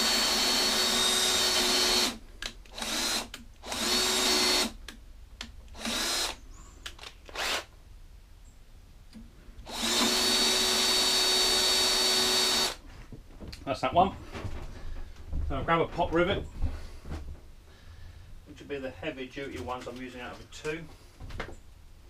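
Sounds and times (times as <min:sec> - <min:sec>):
cordless drill boring through metal: 0:00.0 - 0:04.8, 0:05.8 - 0:06.4, 0:07.3 - 0:07.7, 0:09.6 - 0:12.8.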